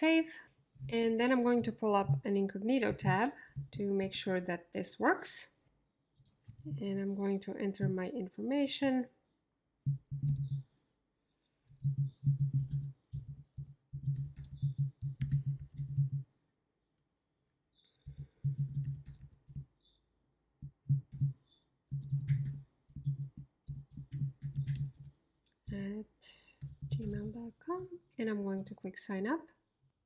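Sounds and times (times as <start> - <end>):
typing on computer keyboard: 9.9 - 10.6, 11.8 - 16.2, 18.0 - 19.7, 20.6 - 25.8, 26.6 - 27.3.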